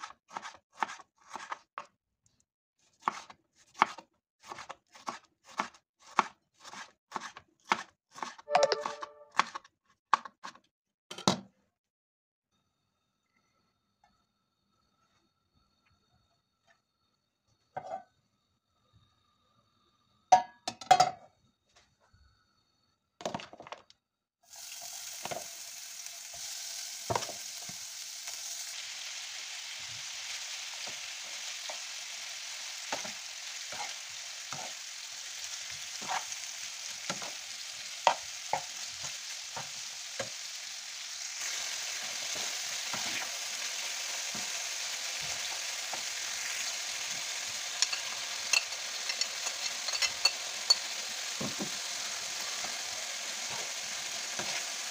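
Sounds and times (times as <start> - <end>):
meat sizzling in frying pan: 24.4 - 54.9
metal spoon scraping pan: 32.9 - 34.8, 47.7 - 51.0.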